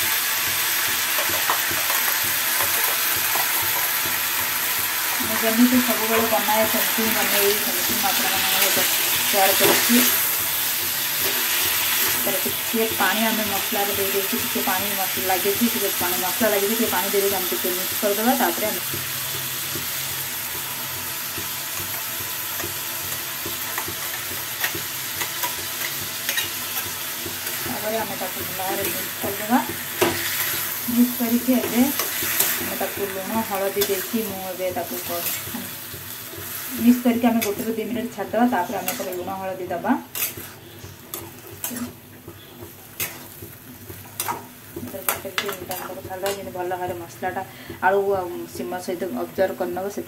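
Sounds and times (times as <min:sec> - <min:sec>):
vegetables sizzling in hot oil: 0:00.0 - 0:50.0
metal spatula scraping pan: 0:36.4 - 0:39.4, 0:40.0 - 0:46.5.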